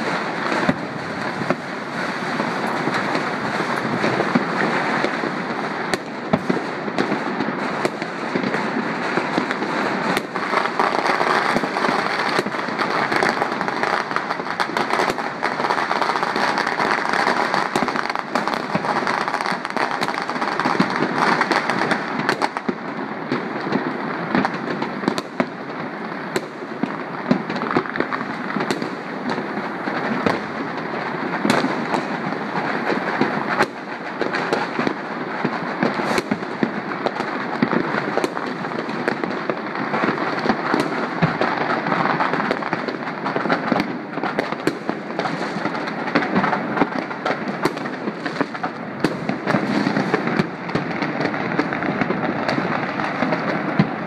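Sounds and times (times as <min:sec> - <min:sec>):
firecrackers crackling: 0:00.0 - 0:54.0.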